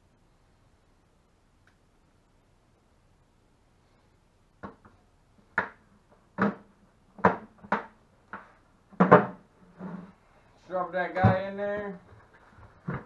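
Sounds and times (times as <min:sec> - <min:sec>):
plastic pipe knocking on bucket: 0:07.2 - 0:09.4.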